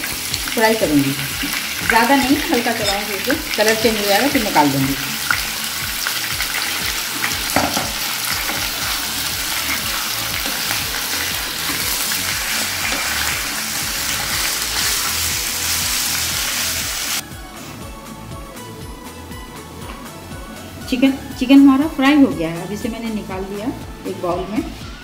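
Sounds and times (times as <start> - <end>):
chicken sizzling in hot oil: 0.0 - 17.2
background music: 0.0 - 25.0.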